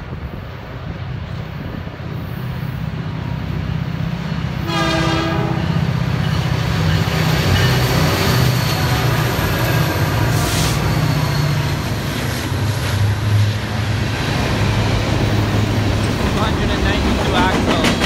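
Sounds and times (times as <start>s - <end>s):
diesel locomotive engines rumbling: 0.0s - 18.0s
locomotive horn blast: 4.6s - 5.8s.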